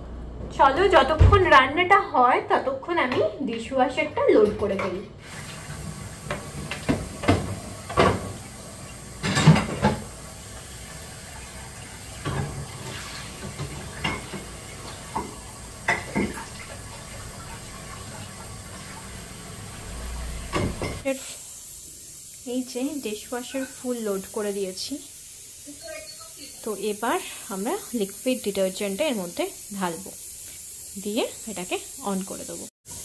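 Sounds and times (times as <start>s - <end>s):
water running at sink: 2.9s - 33.0s
dishes clinking: 9.2s - 10.1s, 13.4s - 14.5s, 15.1s - 16.5s, 20.5s - 21.0s.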